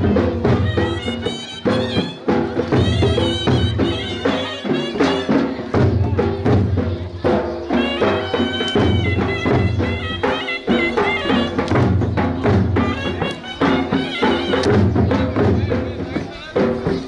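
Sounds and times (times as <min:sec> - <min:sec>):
double-reed pipe folk melody: 0:00.0 - 0:05.8, 0:07.6 - 0:15.4
dhol drum beat: 0:00.0 - 0:17.0.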